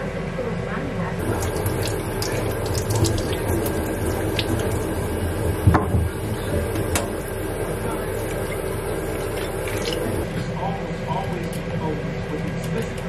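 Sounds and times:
drips and handling ticks: 1.2s - 5.6s, 8.1s - 10.2s
tap water splashing over hands: 1.2s - 7.2s, 8.2s - 10.2s.

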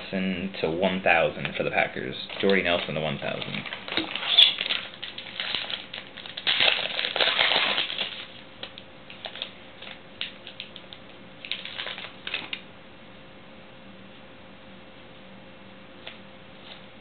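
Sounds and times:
foil wrapper tearing and crinkling: 2.2s - 12.6s.

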